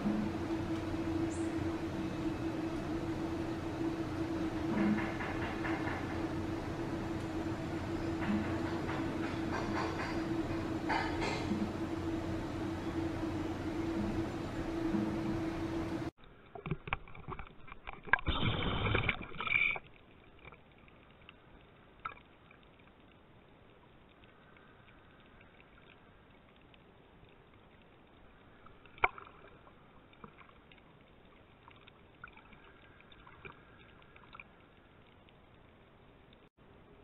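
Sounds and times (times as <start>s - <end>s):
underwater rush of water: 16.4s - 35.7s.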